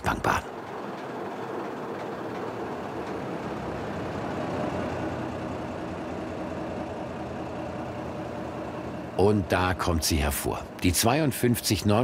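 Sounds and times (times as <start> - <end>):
locomotive diesel engine running: 0.0 - 12.0.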